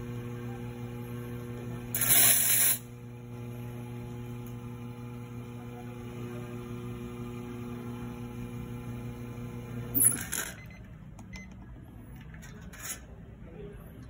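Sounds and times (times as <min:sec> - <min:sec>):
espresso machine pump humming: 0:00.0 - 0:10.8.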